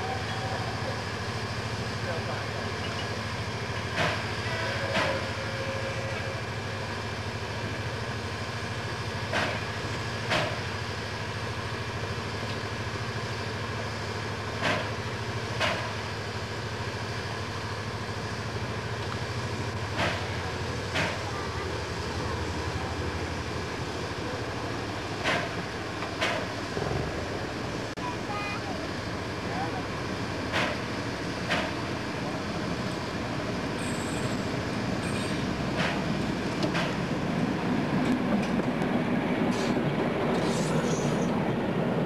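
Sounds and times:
locomotive engine hum: 0:00.0 - 0:42.0
train wheels clacking on rail joints: 0:03.8 - 0:05.4, 0:09.2 - 0:10.7, 0:14.5 - 0:16.1, 0:19.8 - 0:21.4, 0:25.1 - 0:27.2, 0:30.4 - 0:31.9, 0:35.0 - 0:37.2, 0:37.9 - 0:41.4.

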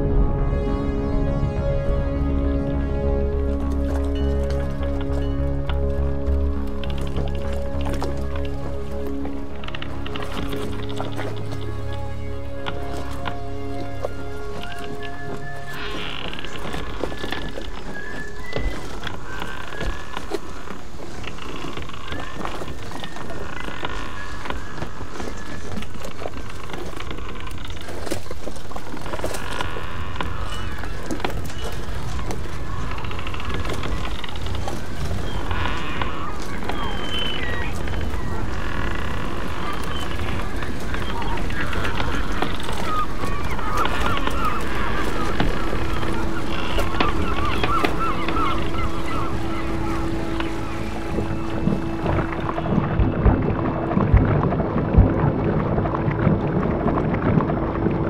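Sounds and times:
crackles and clicks: 0:00.0 - 0:58.0
wavering goose-like honking calls: 0:29.4 - 0:54.3
steady rushing noise: 0:37.4 - 0:58.0.

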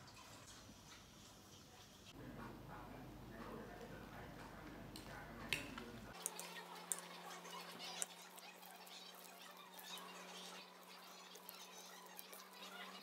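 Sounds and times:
salad leaves scraping and rustling: 0:06.2 - 0:13.0.

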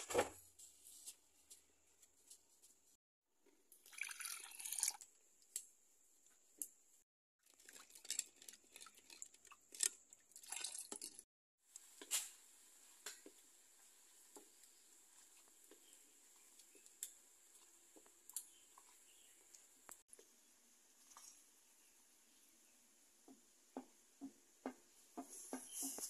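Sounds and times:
syrup bubbling: 0:07.4 - 0:11.8.

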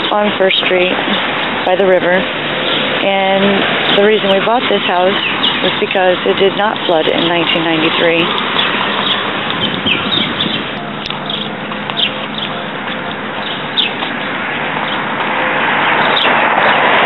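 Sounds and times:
steady outdoor noise: 0:00.0 - 0:17.0
small birds chirping: 0:03.9 - 0:15.4, 0:16.0 - 0:16.8.

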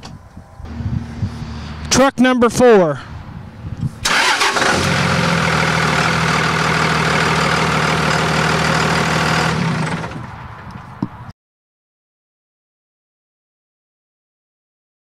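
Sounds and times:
diesel engine cranking and idling: 0:03.0 - 0:10.9.

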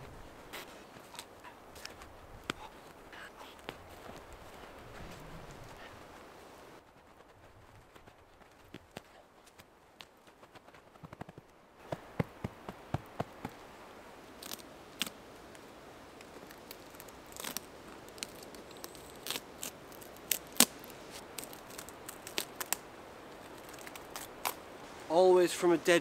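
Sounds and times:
bark cracking as it is torn: 0:14.4 - 0:15.2, 0:16.2 - 0:22.8, 0:23.4 - 0:24.6.

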